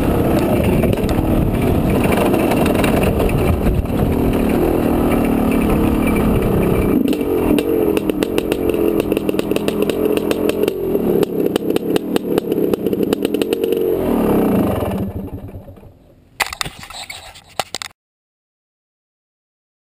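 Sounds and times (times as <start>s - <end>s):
dirt bike engine revving: 0.0s - 15.8s.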